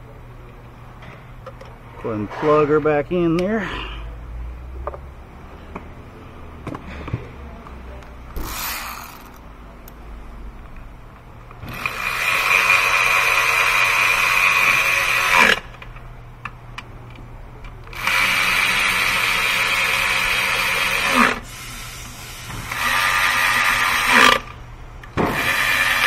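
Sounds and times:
power ratchet whirring: 0:08.3 - 0:09.5, 0:11.6 - 0:15.9, 0:17.8 - 0:24.6, 0:25.2 - 0:26.0.

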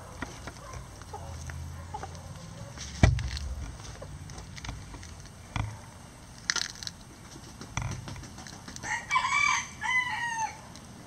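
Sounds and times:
sharp knocks and thumps: 0:02.8 - 0:05.8, 0:07.3 - 0:08.8.

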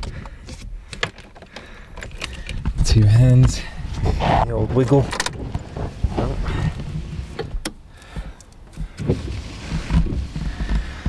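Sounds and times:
car engine starting: 0:04.2 - 0:07.9.

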